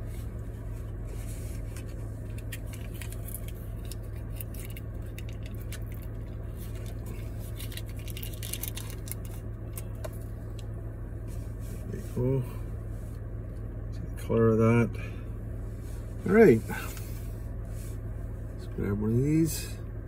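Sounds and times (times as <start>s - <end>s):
low hum inside car: 0.0s - 20.0s
foil lid crackling: 1.6s - 10.0s.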